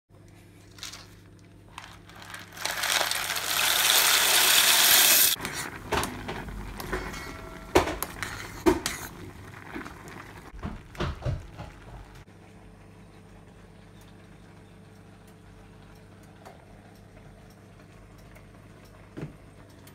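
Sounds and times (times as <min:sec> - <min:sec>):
pasta boiling with rushing hiss: 0:01.7 - 0:06.0, 0:08.0 - 0:12.1.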